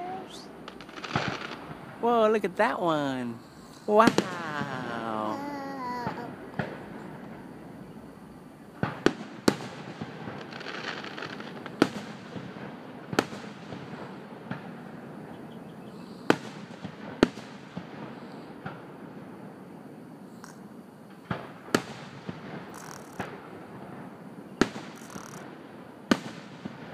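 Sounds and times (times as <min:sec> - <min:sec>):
firework shells bursting: 0:00.0 - 0:14.8, 0:20.4 - 0:26.9.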